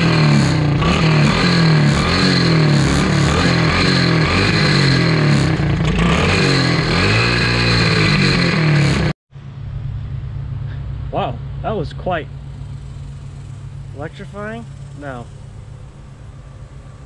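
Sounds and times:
small engine revving: 0.0 - 9.2.

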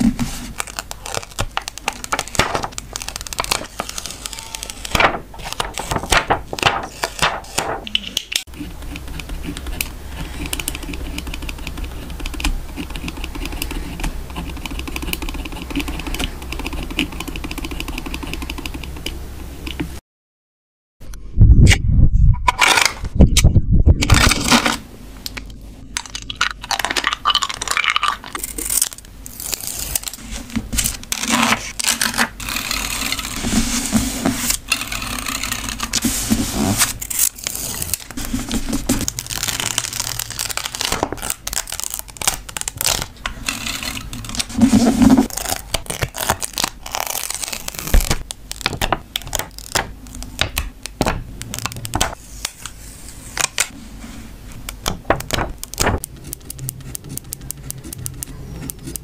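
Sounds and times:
paper rustling and crinkling: 0.0 - 12.2, 26.7 - 50.4, 51.5 - 58.0
stickers peeled off backing: 0.4 - 9.8, 28.3 - 52.8.

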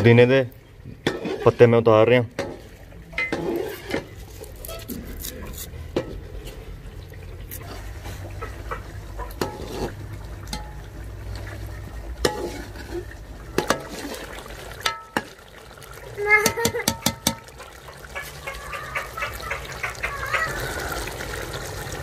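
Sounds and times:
stirring in a pot: 0.0 - 22.0
pot and utensils clinking: 1.0 - 1.7, 2.3 - 6.8, 8.7 - 10.9, 12.2 - 14.2, 14.8 - 15.4, 16.4 - 18.4.

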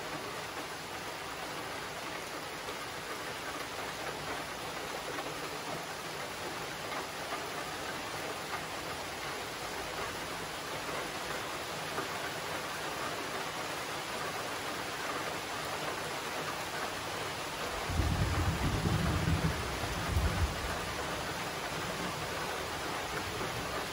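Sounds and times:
steady rain hissing: 0.0 - 23.9
low rumble of thunder: 17.7 - 23.9.

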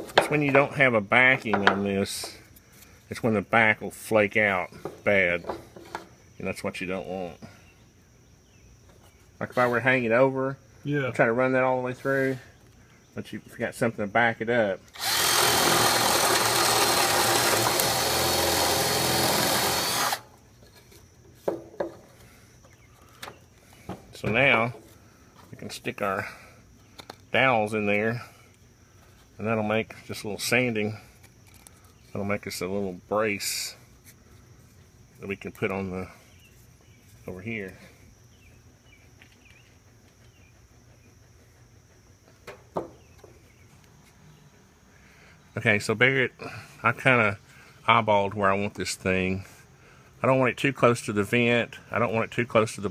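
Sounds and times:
insects chirring: 0.0 - 52.9
cordless drill boring wood: 14.9 - 20.3
bird-like chirps: 38.3 - 41.1.

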